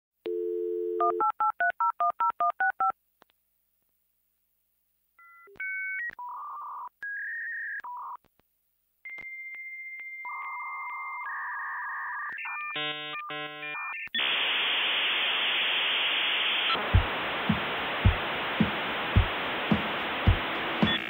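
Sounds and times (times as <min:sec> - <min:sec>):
dial tone: 0:00.3 - 0:01.4.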